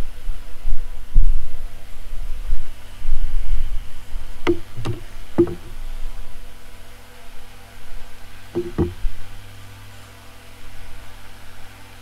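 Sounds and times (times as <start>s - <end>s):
wooden table leg knocking: 4.5s - 5.8s, 8.6s - 9.0s.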